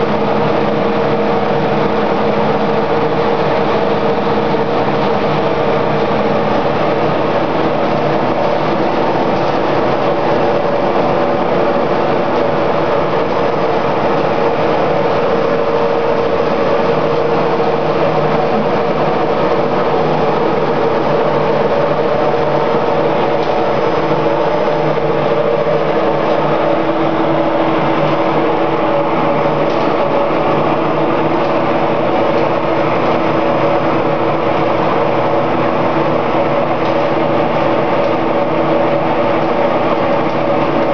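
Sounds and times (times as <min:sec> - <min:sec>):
briquetting press running: 0:00.0 - 0:40.9.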